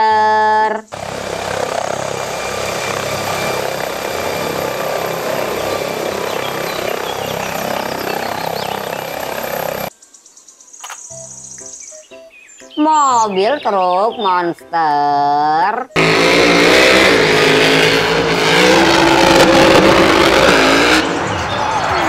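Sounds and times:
helicopter rotor beating whine: 0.7s - 9.9s, 16.0s - 21.7s.

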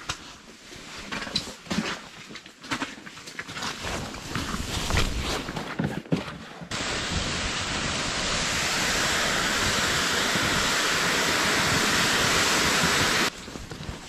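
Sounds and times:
sled scraping over snow: 3.8s - 14.0s.

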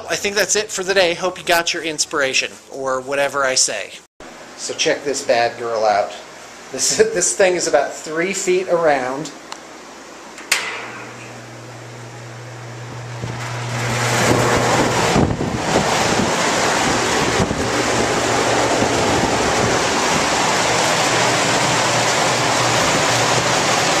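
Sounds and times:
fan airflow wind noise: 0.0s - 24.0s
low motor hum: 10.8s - 24.0s.

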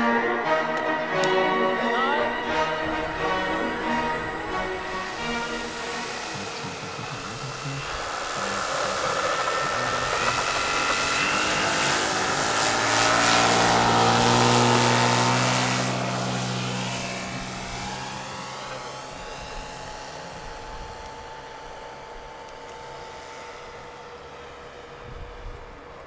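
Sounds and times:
model plane motor and propeller: 0.4s - 26.0s.

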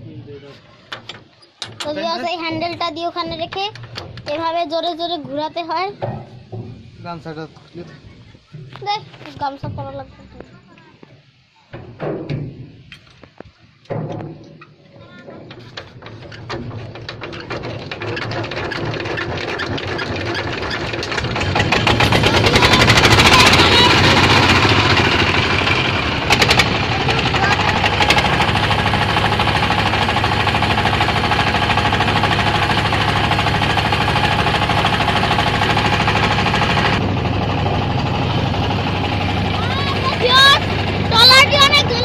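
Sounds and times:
diesel engine knocking: 15.8s - 42.0s.

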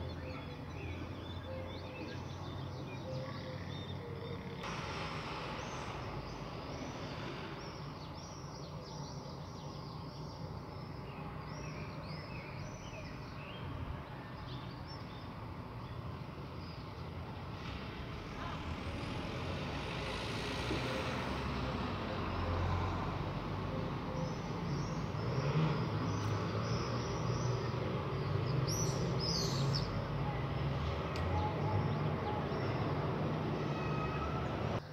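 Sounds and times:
broad hiss: 4.6s - 8.6s
small birds chirping: 5.4s - 19.2s, 21.5s - 34.9s.

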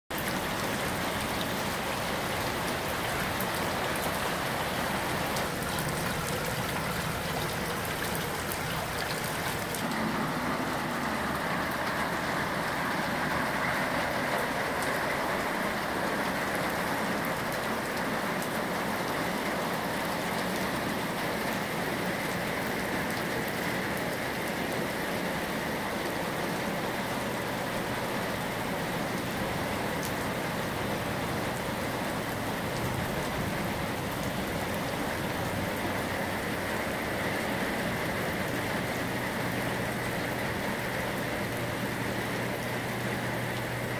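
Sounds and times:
drainpipe water splashing into basin: 0.1s - 12.0s
heavy rain falling: 0.1s - 43.9s.

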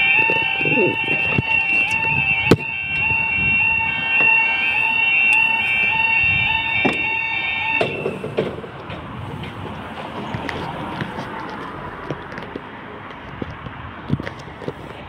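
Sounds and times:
two-tone warning alarm: 0.0s - 8.8s.

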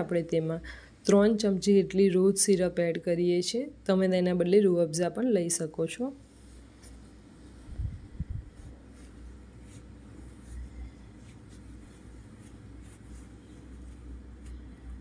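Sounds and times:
low hum: 6.3s - 15.0s.

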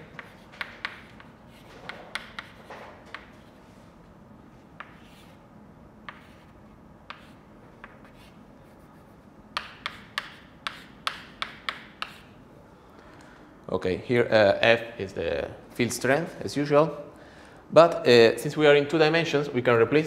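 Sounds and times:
chalk tapping and writing on chalkboard: 0.0s - 3.6s, 4.7s - 5.4s, 6.0s - 12.4s.

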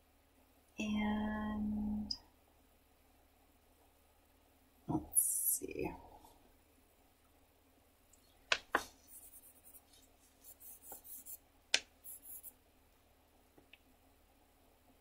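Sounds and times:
pencil shading on paper: 8.8s - 11.4s, 12.0s - 12.5s.

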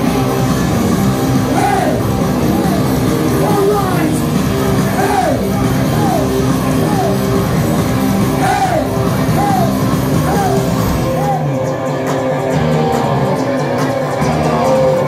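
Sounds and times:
punk rock band playing: 0.0s - 15.0s
singer yelling: 1.4s - 7.4s, 8.2s - 11.6s.

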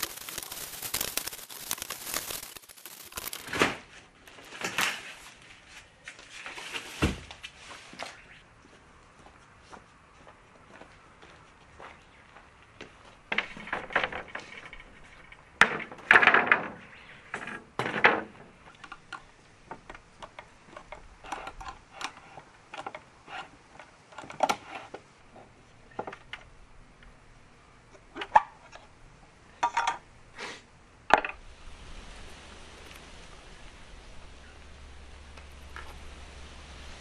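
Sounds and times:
steady hiss: 0.0s - 4.2s, 30.2s - 37.0s.

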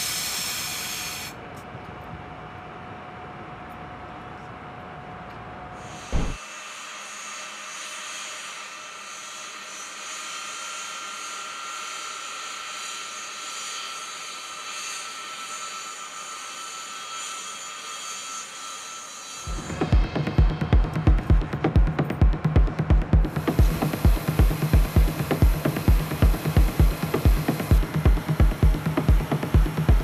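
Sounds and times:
machine hiss with high whine: 0.0s - 1.6s, 5.7s - 30.0s
dull thump: 6.1s - 6.4s.

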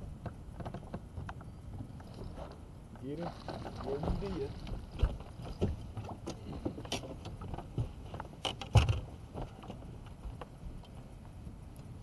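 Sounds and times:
feet and gear knocking on boat deck: 3.3s - 8.1s.

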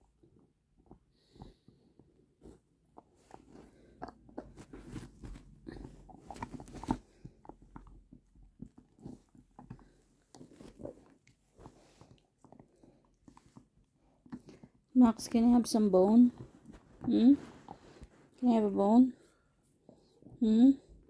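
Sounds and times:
dog gnawing on a bone: 5.8s - 14.9s.

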